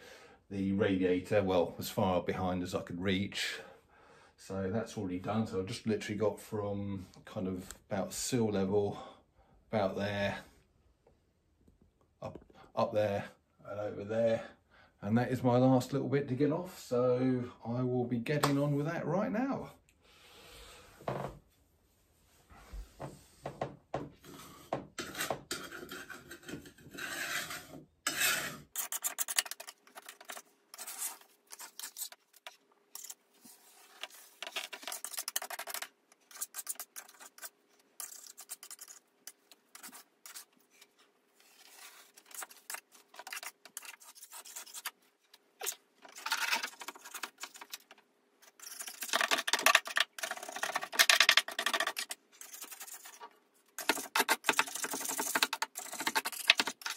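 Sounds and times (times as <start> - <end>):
scraper scraping paper off a wall: 24.2 - 39.0, 41.4 - 45.0, 45.6 - 53.2, 53.8 - 56.9.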